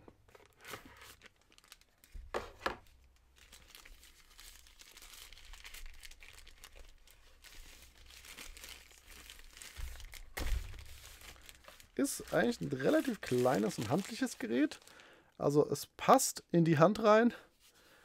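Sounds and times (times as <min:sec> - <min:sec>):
plastic bag crinkling: 0:00.4 - 0:02.3, 0:03.2 - 0:15.2.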